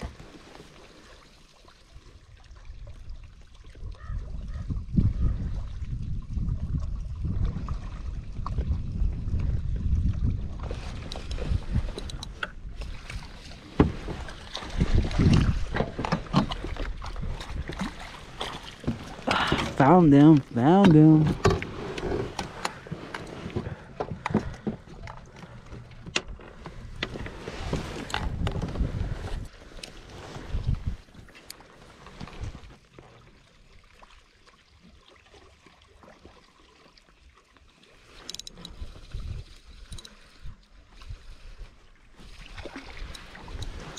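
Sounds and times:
water lapping around kayak: 0:00.0 - 0:43.9.

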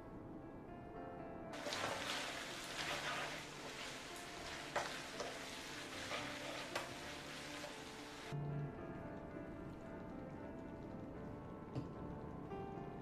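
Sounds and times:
food sizzling in a frying pan: 0:01.6 - 0:08.4.

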